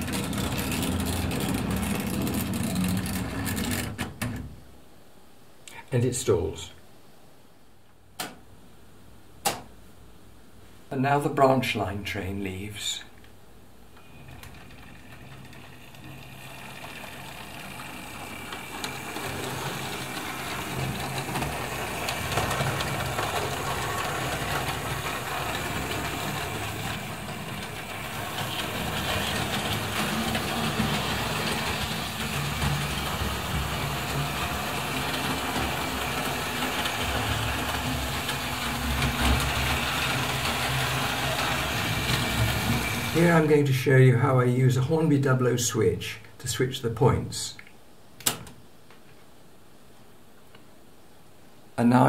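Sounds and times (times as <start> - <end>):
model train motor whirr: 0.0 - 3.9, 14.1 - 43.4
model train wheel rattle: 0.0 - 3.9, 14.1 - 43.5.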